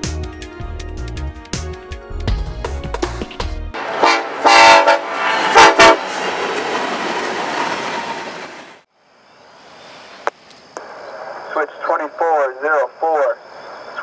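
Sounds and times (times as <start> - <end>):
music: 0.0 - 3.8
locomotive air horn blasts: 3.8 - 6.2
train rolling past: 3.8 - 8.9.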